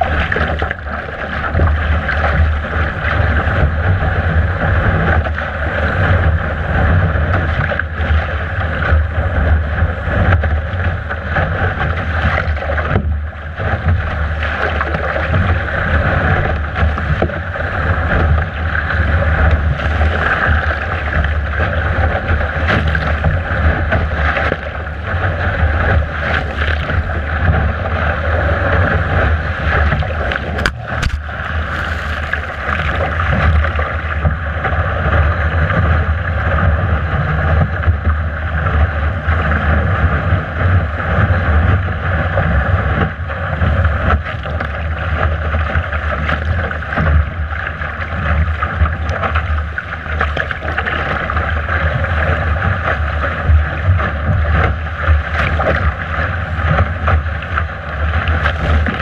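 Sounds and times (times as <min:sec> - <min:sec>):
water rushing along hull: 0:00.0 - 0:59.0
wind buffeting microphone: 0:00.0 - 0:59.0.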